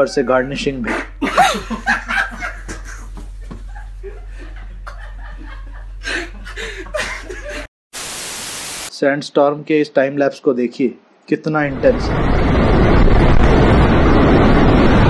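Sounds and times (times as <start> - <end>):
low steady hum: 0.0 - 7.7
people laughing: 0.0 - 7.7
tv static hiss: 7.9 - 9.0.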